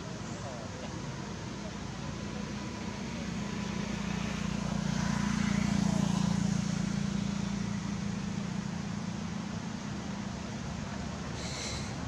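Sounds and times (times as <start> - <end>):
motor vehicle passing: 1.6 - 12.0.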